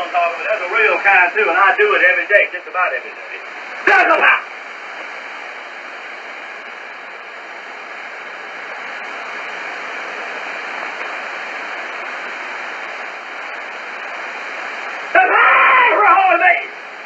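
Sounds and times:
shortwave radio static hiss: 0.0s - 17.0s.

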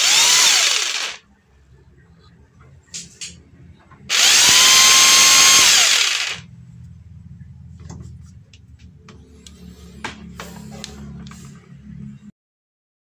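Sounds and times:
jigsaw motor whine: 0.0s - 1.2s, 4.1s - 6.5s
low hum: 1.2s - 12.3s.

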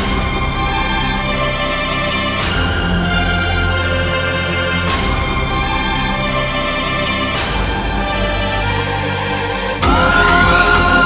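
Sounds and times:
film song instrumental chords: 0.0s - 11.0s.

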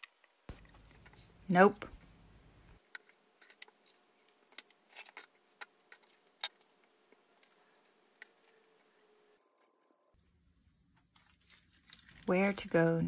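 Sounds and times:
paper rustling: 10.9s - 12.9s.

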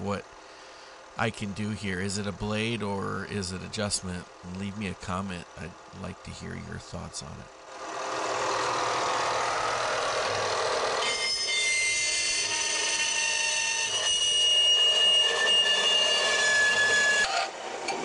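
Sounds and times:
bandsaw running: 7.7s - 17.6s
high-pitched squeal of metal cutting: 10.0s - 17.6s.

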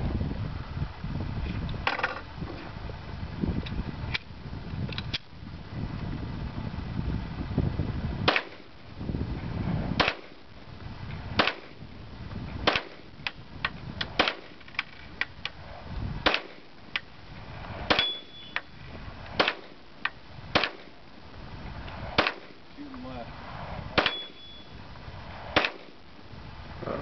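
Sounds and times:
loud pistol shots: 8.2s - 8.6s, 10.0s - 10.4s, 11.4s - 11.8s, 12.6s - 13.0s, 14.2s - 14.6s, 16.2s - 16.6s, 17.9s - 18.6s, 19.4s - 19.8s, 20.5s - 20.9s, 22.1s - 22.6s, 23.9s - 24.7s, 25.5s - 26.0s
short ringing tone: 18.0s - 18.7s, 24.0s - 24.8s.

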